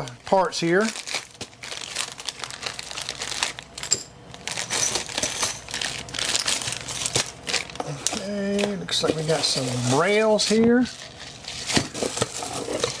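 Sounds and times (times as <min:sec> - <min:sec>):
plastic bags crinkling: 0:00.0 - 0:13.0
small metal parts clinking: 0:03.8 - 0:06.8.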